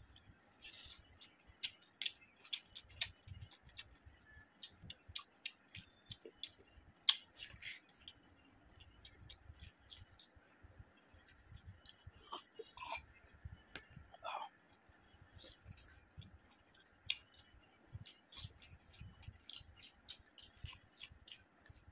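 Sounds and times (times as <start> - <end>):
person chewing with wet clicks: 0.0 - 10.4, 11.2 - 21.9.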